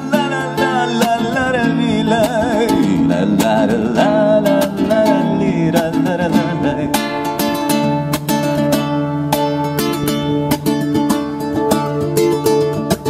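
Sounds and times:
man singing with vibrato: 0.0 - 8.4
acoustic guitar strumming: 0.0 - 13.0.

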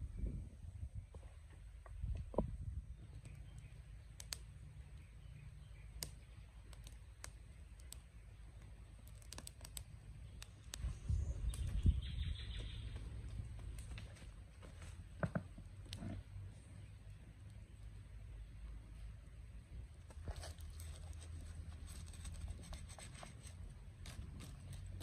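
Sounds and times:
twigs crackling in fire: 3.0 - 5.1, 5.7 - 11.8, 13.2 - 14.9.

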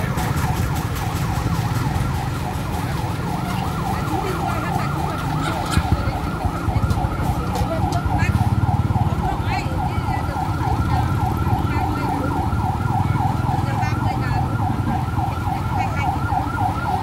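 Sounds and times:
low engine rumble: 0.0 - 16.9
fire truck siren yelping: 0.0 - 17.0.

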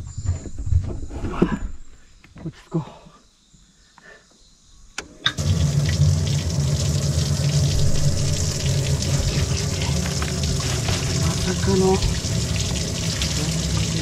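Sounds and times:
pump humming: 5.2 - 14.0
water rushing: 5.4 - 14.0.

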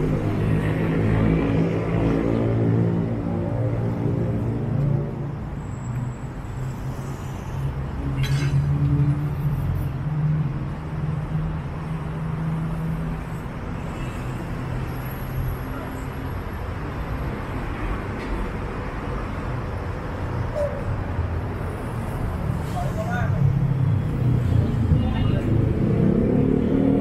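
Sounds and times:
car engines passing: 0.0 - 27.0.

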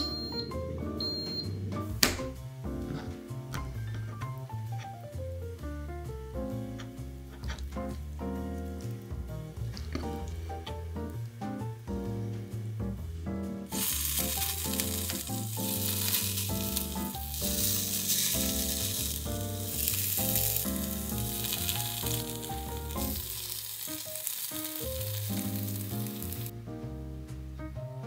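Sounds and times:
background music with melody: 0.0 - 28.0
food sizzling: 13.7 - 26.5.

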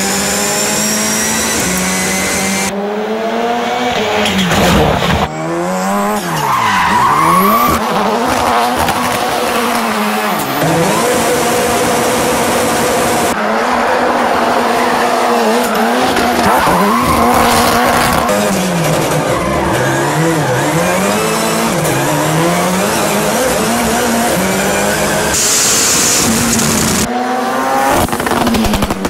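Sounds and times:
rally car engine revving high: 0.0 - 29.0
tyre squeal and skidding: 4.2 - 10.8, 13.3 - 23.1.

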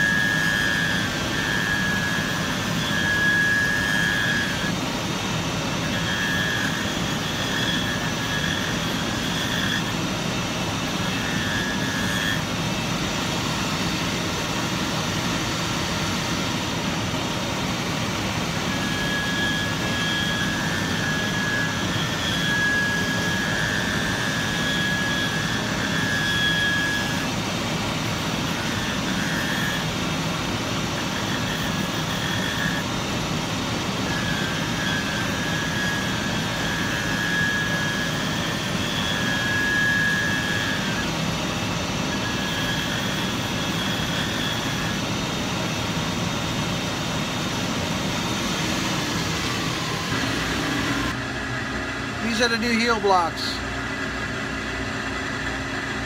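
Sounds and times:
finishing machine whooshing and whining: 47.5 - 52.6.

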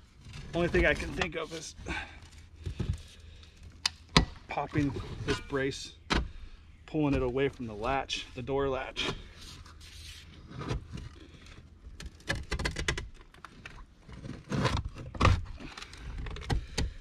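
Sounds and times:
shovel scraping rusted metal: 0.4 - 1.9, 4.7 - 5.7.

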